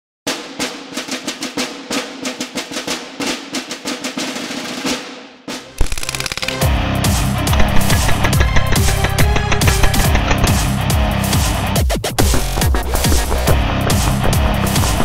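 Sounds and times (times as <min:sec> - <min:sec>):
drum-heavy percussive music: 0:00.3 - 0:15.0
bass-heavy music: 0:05.7 - 0:15.0
bb gun full-auto burst: 0:05.8 - 0:06.7, 0:07.5 - 0:10.6.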